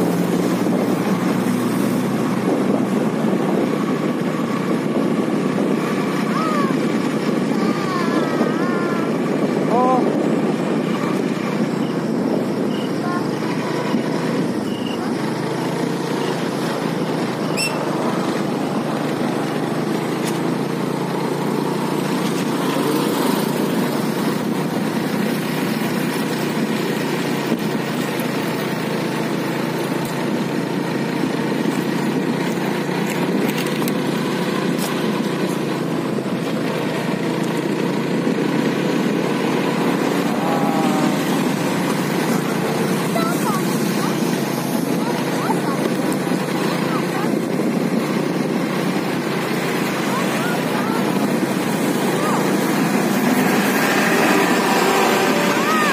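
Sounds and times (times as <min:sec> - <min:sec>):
vehicle engine running: 0:00.0 - 0:55.9.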